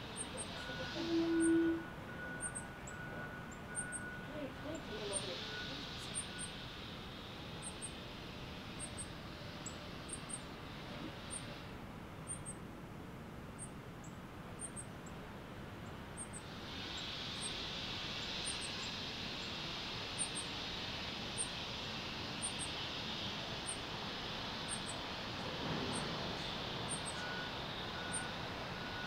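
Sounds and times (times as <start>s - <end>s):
faint high chirps: 0.0s - 6.7s, 25.7s - 29.0s
steady hiss: 0.0s - 29.0s.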